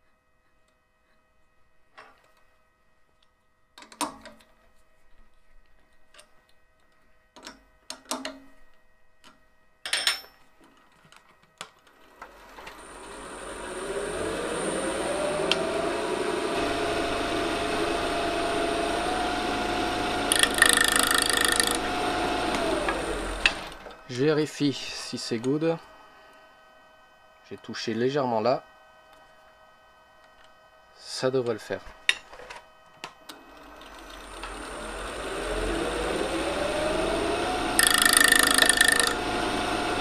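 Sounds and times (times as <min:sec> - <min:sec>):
wood lathe motor whine: 0:12.2 - 0:28.6, 0:33.3 - 0:40.0
turning tool hissing cut: 0:12.8 - 0:23.8, 0:34.1 - 0:40.0.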